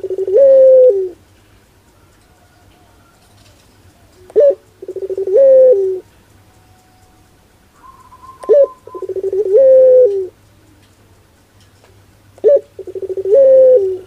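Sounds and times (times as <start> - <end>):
dove cooing: 0.0 - 1.3, 2.1 - 6.1, 7.7 - 10.9, 12.4 - 14.0.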